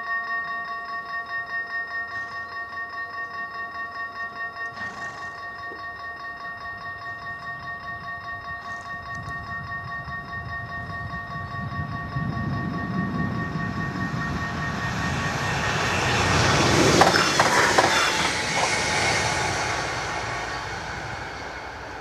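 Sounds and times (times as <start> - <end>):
level crossing bells ringing: 0.0 - 18.7
train wheel clacks: 4.6 - 22.0
train rumbling past: 4.7 - 22.0.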